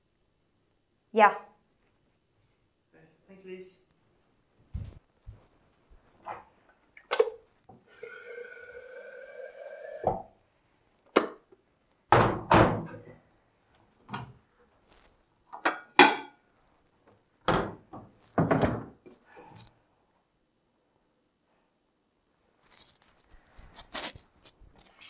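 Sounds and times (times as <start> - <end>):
water running into kettle: 7.8 - 10.3.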